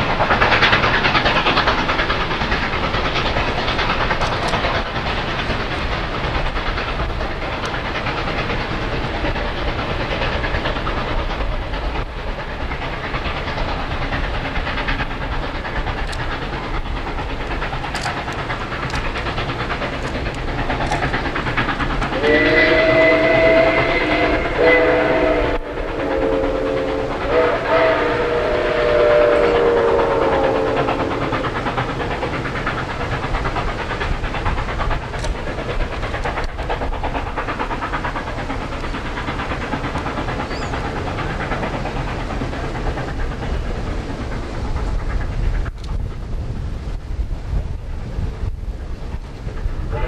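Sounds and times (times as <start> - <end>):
steam locomotive running: 0.0 - 50.0
steam locomotive whistle: 22.1 - 31.5.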